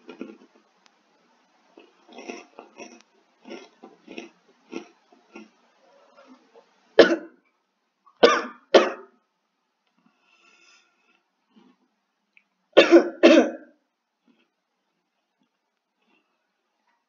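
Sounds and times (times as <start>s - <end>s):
boy coughing hard: 7.0s - 7.3s, 8.2s - 9.0s, 12.8s - 13.6s.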